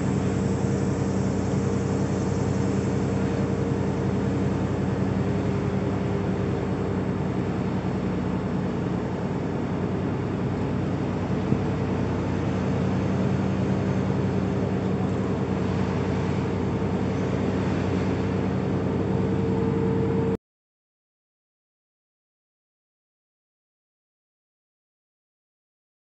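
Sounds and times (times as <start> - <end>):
low hum: 0.0 - 20.4
vehicle engine hum from inside: 0.0 - 20.4.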